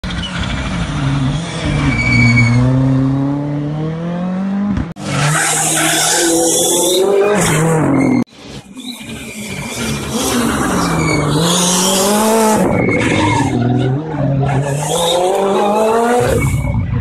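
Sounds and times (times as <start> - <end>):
rally car engine revving: 0.0 - 17.0
tyres squealing: 5.1 - 16.7.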